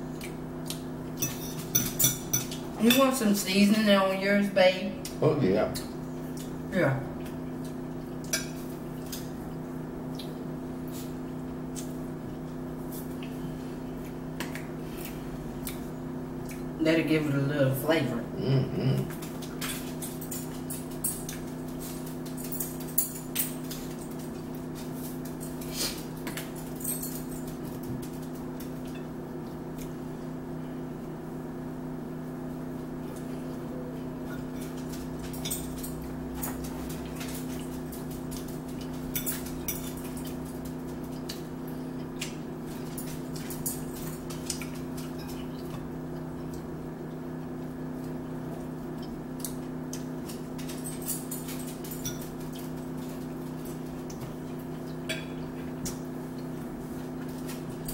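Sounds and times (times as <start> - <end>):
forks clicking on plates: 34.3 - 41.5, 49.0 - 52.7.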